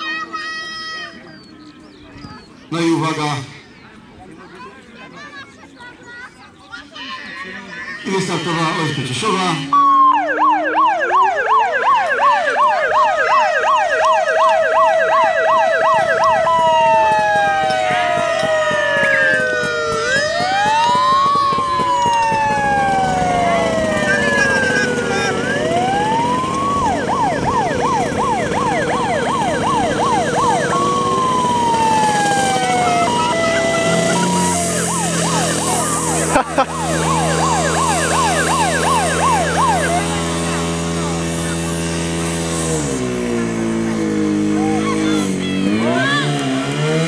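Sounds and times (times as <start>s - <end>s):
siren yelping: 8.0s - 41.0s, 44.5s - 46.3s
steady siren tone: 8.7s - 41.8s.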